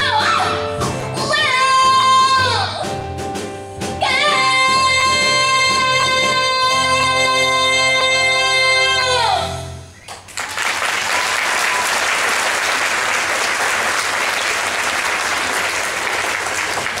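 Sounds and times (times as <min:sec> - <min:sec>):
audience applause: 0:10.0 - 0:17.0.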